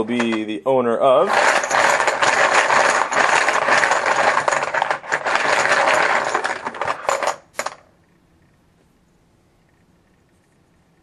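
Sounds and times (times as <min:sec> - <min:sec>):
dice rattling in shaker cup: 0:01.3 - 0:07.8
dice clicking as they land: 0:06.6 - 0:07.8.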